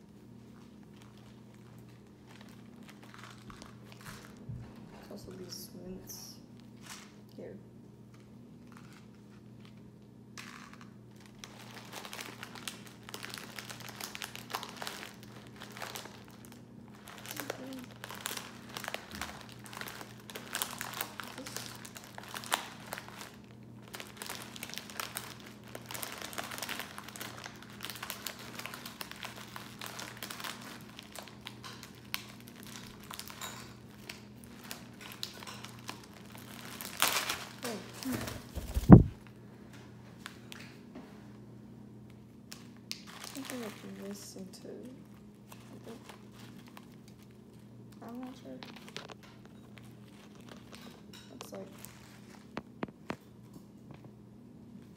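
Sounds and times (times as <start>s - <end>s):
plastic bag crinkling: 0.4s - 4.5s, 8.6s - 39.2s, 42.5s - 53.2s.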